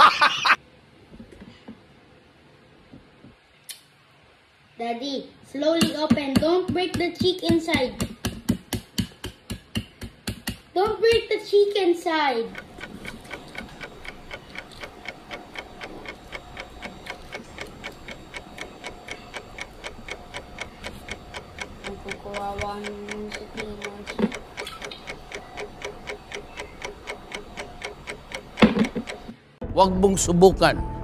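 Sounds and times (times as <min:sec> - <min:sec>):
faint steady hum: 0:10.7 - 0:29.6
rapid ticking: 0:12.4 - 0:29.4.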